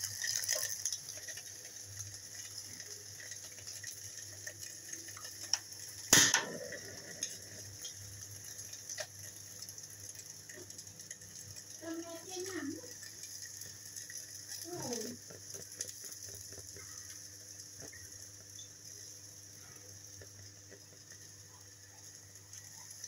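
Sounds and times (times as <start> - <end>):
gas burner hissing: 0.0 - 23.0
faint ticks: 13.0 - 23.0.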